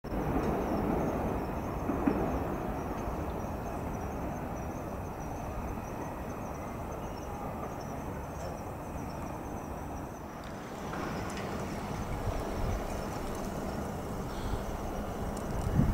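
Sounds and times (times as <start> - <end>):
insects chirping: 0.1 - 15.9
low background rumble: 8.9 - 15.9.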